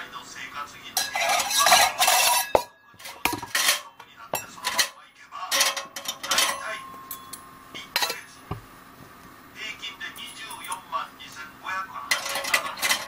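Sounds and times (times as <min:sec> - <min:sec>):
metallic clinks and rattles: 0:05.6 - 0:08.3, 0:10.2 - 0:10.9.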